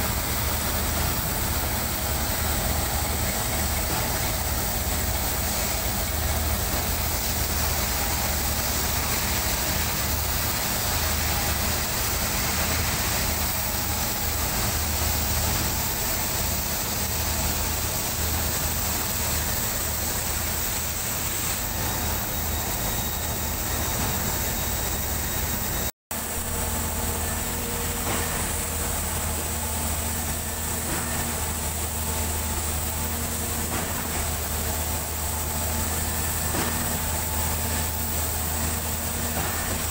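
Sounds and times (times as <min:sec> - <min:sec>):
heavy diesel engines running: 0:00.0 - 0:39.9.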